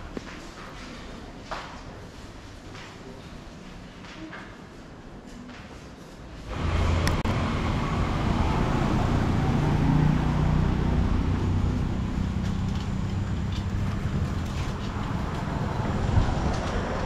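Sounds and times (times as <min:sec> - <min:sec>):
low road rumble: 0:06.5 - 0:17.0
vehicle engine passing: 0:06.5 - 0:17.0.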